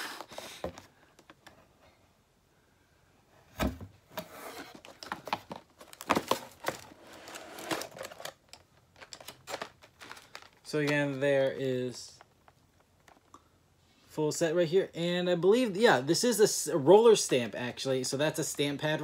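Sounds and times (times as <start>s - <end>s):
packaging crinkling: 4.7s - 11.2s.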